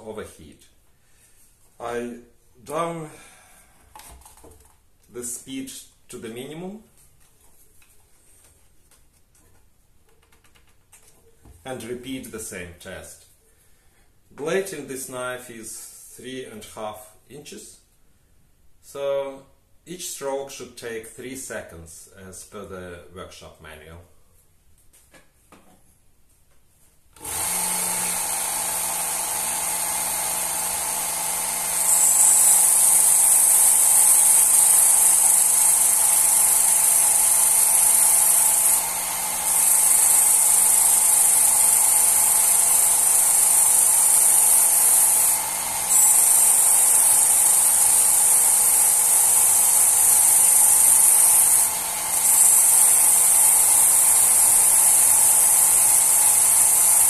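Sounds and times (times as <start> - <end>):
electric sharpener humming: 27.2 - 57.0
knife grinding on abrasive belt: 31.6 - 57.0.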